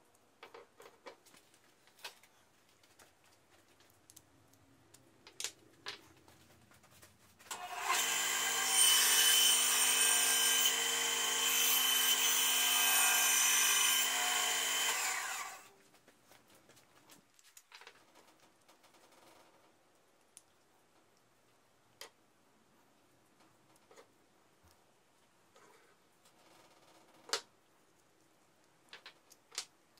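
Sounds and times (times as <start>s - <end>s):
power tool motor whining: 7.5s - 15.7s.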